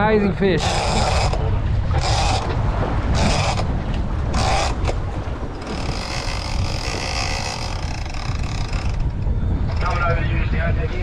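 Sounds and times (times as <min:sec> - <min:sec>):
wind on microphone: 0:00.0 - 0:11.0
fishing reel buzzing: 0:00.6 - 0:01.4, 0:02.0 - 0:02.6, 0:03.2 - 0:03.7, 0:04.3 - 0:05.0, 0:05.6 - 0:09.8.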